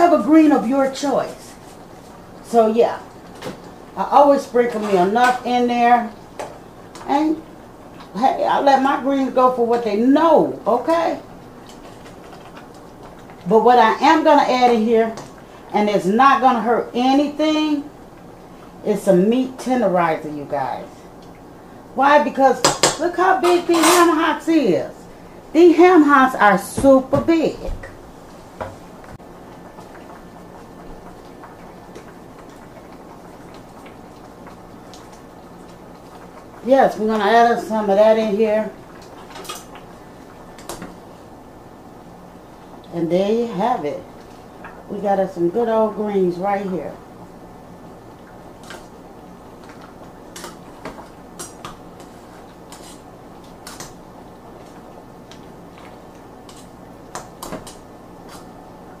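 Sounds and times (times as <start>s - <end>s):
pot simmering with ticks and pops: 1.4s - 8.3s, 10.5s - 16.5s, 17.2s - 18.8s, 21.0s - 21.8s, 27.9s - 43.0s, 44.0s - 45.0s, 46.9s - 59.0s.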